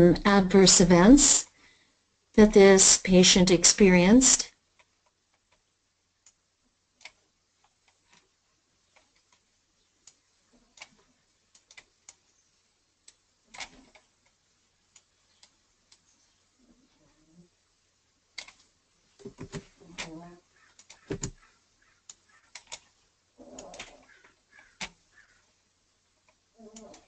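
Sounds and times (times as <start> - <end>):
computer mouse clicks: 7.0 - 8.2, 18.4 - 18.7, 22.1 - 22.9.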